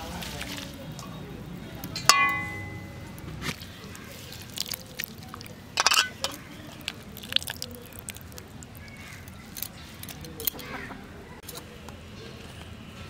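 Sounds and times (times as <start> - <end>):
water splashing in metal bowl: 2.0 - 9.6.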